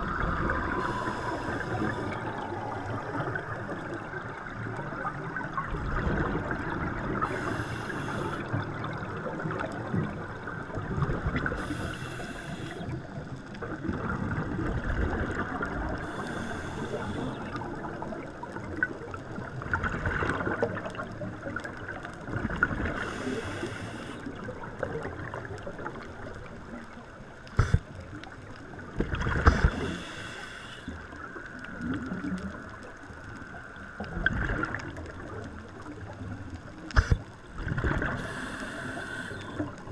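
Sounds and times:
scuba regulator bubbles hissing: 0:00.0 - 0:03.8, 0:06.2 - 0:08.6, 0:11.5 - 0:13.0, 0:27.6 - 0:27.9, 0:29.4 - 0:30.9, 0:36.9 - 0:37.2, 0:37.8 - 0:39.8
underwater low churning: 0:00.0 - 0:39.9.

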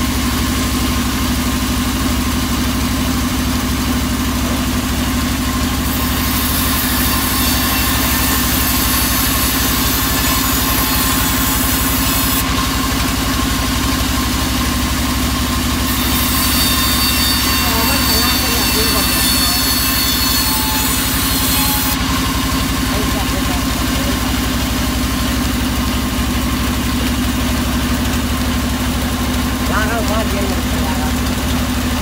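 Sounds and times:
band saw running: 0:00.0 - 0:32.0.

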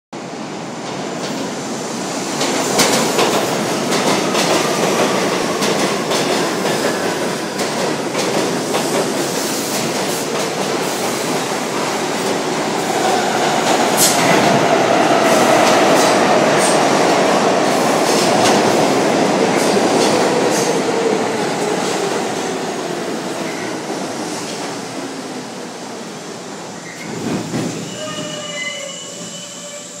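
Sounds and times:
high squealing brakes: 0:26.8 - 0:30.0.

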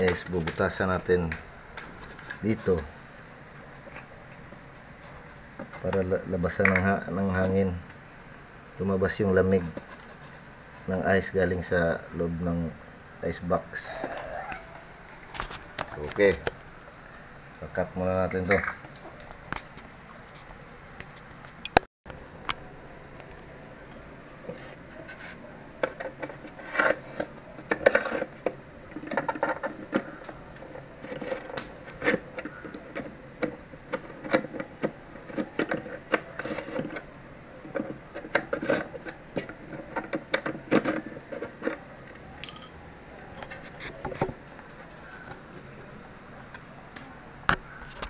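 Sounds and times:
clicks and knocks of handling: 0:00.0 - 0:04.6, 0:23.2 - 0:44.7.

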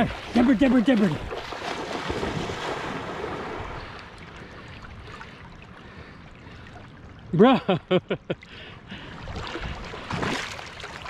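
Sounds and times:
dog splashing in water: 0:00.0 - 0:03.6.

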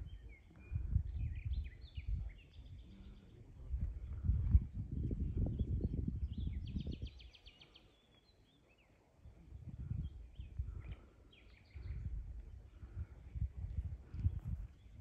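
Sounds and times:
wind noise rumble: 0:00.0 - 0:02.3, 0:03.5 - 0:07.2, 0:09.4 - 0:11.1, 0:11.7 - 0:15.0
small birds trilling and chirping: 0:00.0 - 0:15.0.

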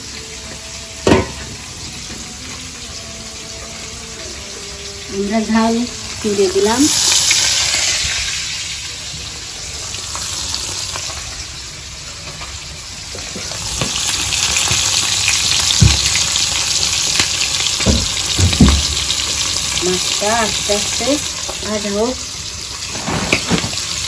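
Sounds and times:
oil sizzling in a wok: 0:00.0 - 0:24.0
dull thumps: 0:17.8 - 0:19.0.

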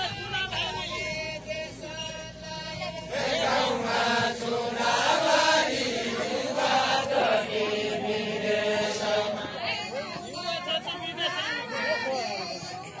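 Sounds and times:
group of voices chanting: 0:00.0 - 0:09.8.

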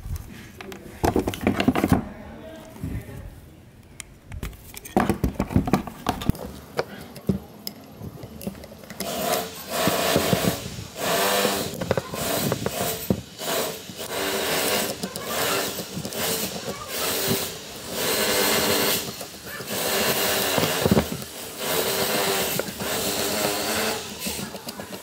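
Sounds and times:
screwdriver scraping metal: 0:07.6 - 0:25.0.

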